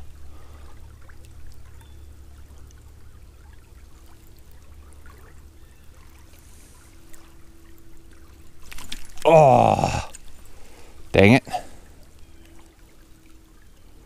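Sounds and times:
creek water rushing: 0:06.1 - 0:13.5.

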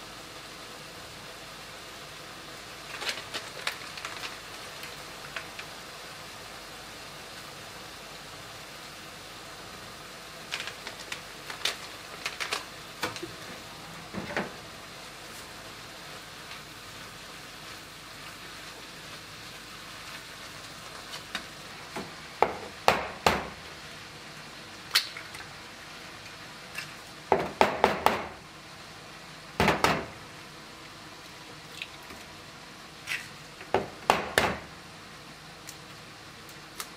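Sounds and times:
meat sizzling in a frying pan: 0:00.0 - 0:27.5.

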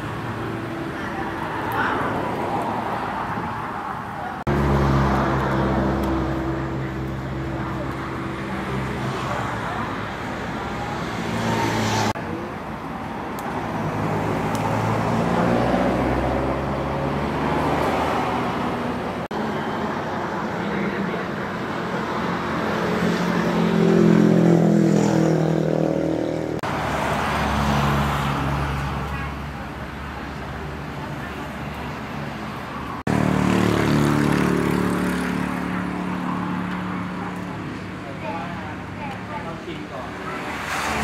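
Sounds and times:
vehicle passing: 0:00.0 - 0:12.4, 0:13.6 - 0:19.8, 0:20.4 - 0:41.0
hum of traffic engines and tyres: 0:00.0 - 0:41.0.

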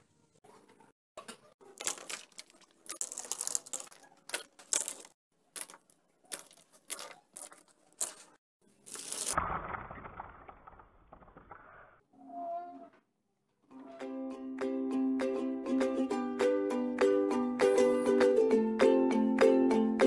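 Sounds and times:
marker pens clattering: 0:01.7 - 0:08.3.

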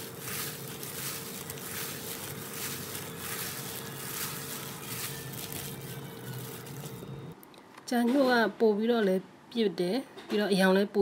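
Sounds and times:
wet noodles squelching: 0:00.0 - 0:07.1
plastic glove crinkling: 0:00.0 - 0:07.4.

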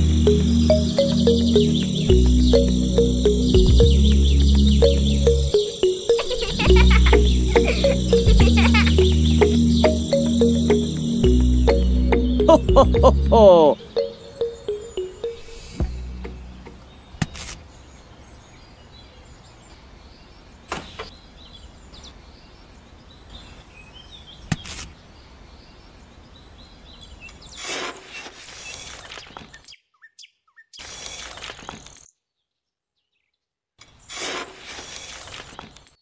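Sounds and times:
birds chirping: 0:00.0 - 0:24.5.

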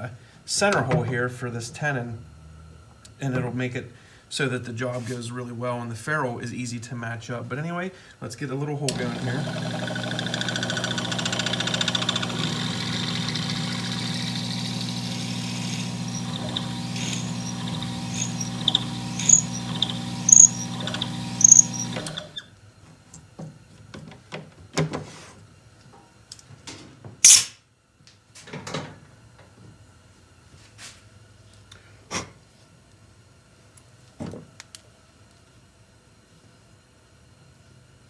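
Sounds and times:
small lathe running: 0:08.9 - 0:22.4
drill bit squeaks: 0:08.9 - 0:22.5.

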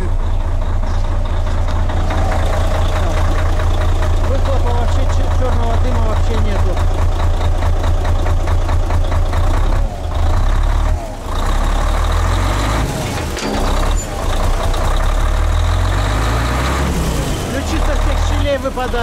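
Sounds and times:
diesel truck engine idling: 0:00.0 - 0:19.0.

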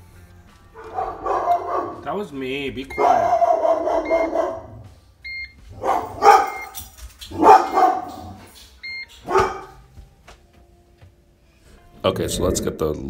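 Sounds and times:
dog barking: 0:00.8 - 0:02.1, 0:03.0 - 0:04.9, 0:05.7 - 0:08.6, 0:09.2 - 0:09.8.

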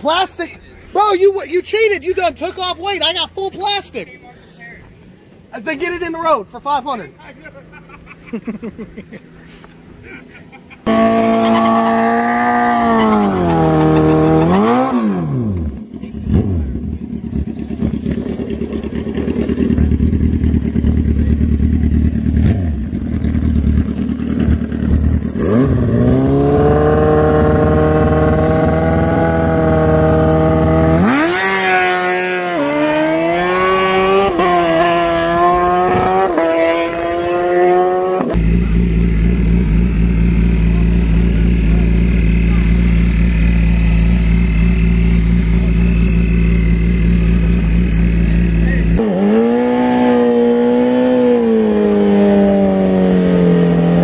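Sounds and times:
sport bike engine revving: 0:10.6 - 0:54.0
motorcycle idling: 0:15.4 - 0:31.2, 0:38.4 - 0:49.0.

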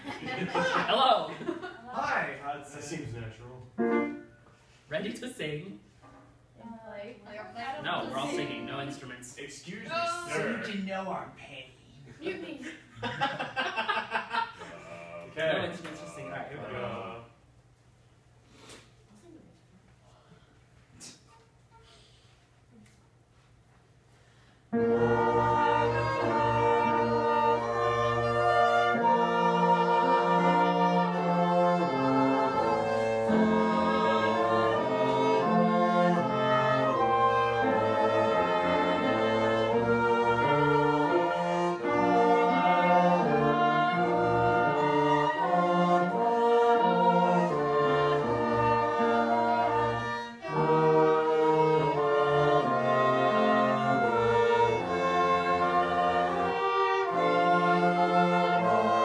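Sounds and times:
small ensemble playing sustained chords: 0:03.4 - 0:05.1, 0:07.3 - 0:10.7, 0:14.5 - 0:17.4, 0:24.7 - 0:59.0.

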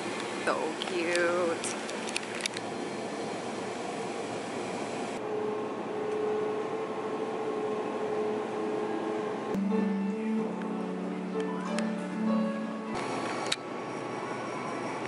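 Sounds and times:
quiet background music: 0:09.6 - 0:13.6.

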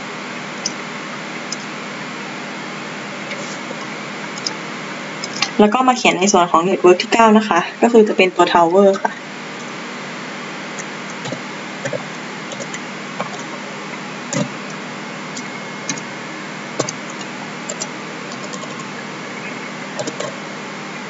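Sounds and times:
keyboard keystroke clicks: 0:16.8 - 0:18.8.

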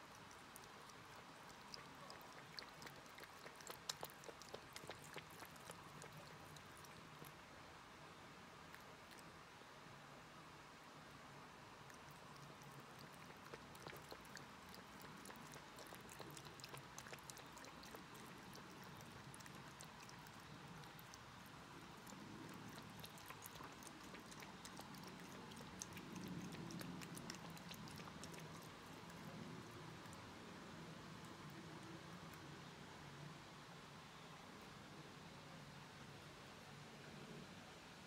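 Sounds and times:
cat lapping water: 0:00.0 - 0:07.5, 0:08.6 - 0:09.3, 0:11.7 - 0:32.5.

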